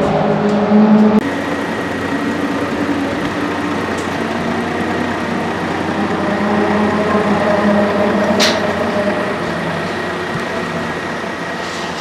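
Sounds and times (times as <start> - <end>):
racing engine idling: 0.0 - 12.0.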